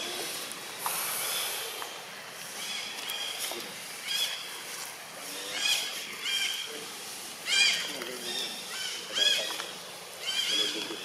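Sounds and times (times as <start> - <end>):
macaque calls: 5.4 - 6.8, 7.4 - 11.0.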